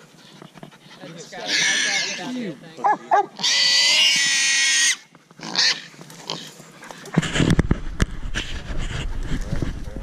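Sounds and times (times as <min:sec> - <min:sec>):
hog squealing: 0:00.2 - 0:02.3, 0:02.9 - 0:06.4.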